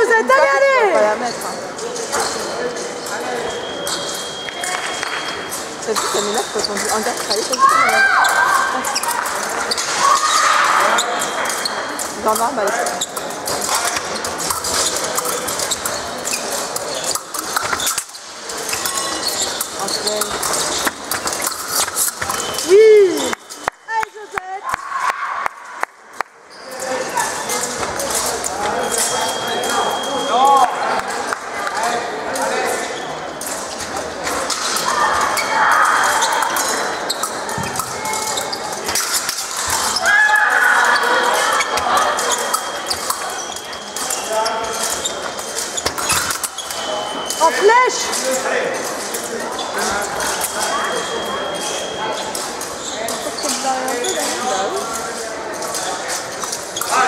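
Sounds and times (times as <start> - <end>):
echoing sports hall background: 0.0 - 57.0.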